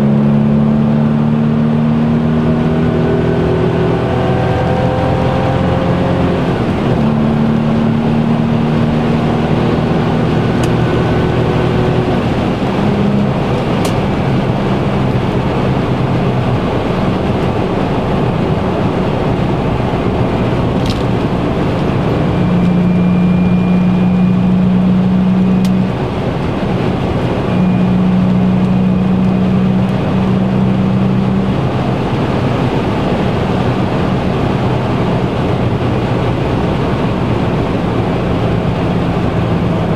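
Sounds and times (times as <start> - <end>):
car engine drone: 0.0 - 39.9
tyre and road noise: 1.7 - 39.9.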